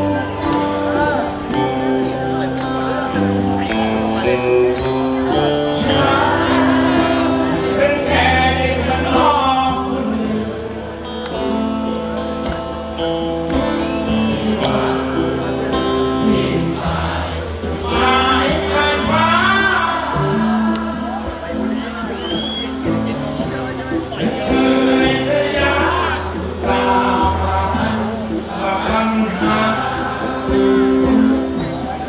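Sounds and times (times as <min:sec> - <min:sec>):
live band music: 0:00.0 - 0:32.0
man singing: 0:05.3 - 0:11.1, 0:13.9 - 0:22.5, 0:24.2 - 0:31.8.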